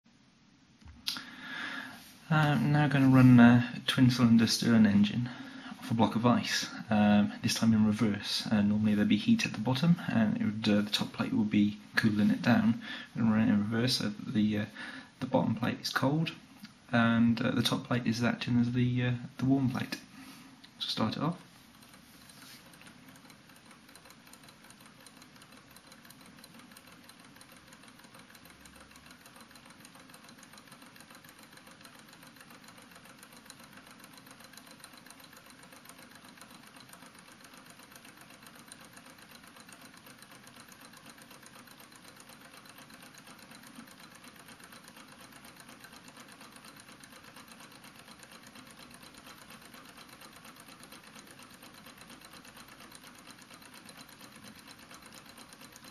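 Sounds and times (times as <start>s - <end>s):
model engine mechanical ticking: 20.7s - 55.9s.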